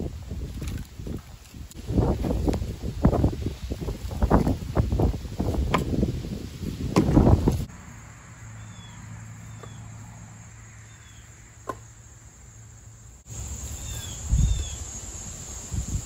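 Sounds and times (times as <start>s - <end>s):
high chirps of insects or birds: 0.0s - 16.0s
firewood knocking onto stack: 6.9s - 7.5s, 11.6s - 11.9s.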